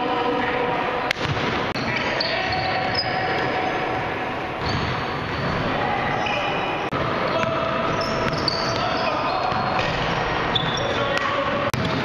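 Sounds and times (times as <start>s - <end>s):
basketball bouncing on court: 1.1s - 3.4s, 4.6s - 5.6s, 6.9s - 10.9s, 11.7s - 12.0s
players calling out: 1.7s - 12.0s.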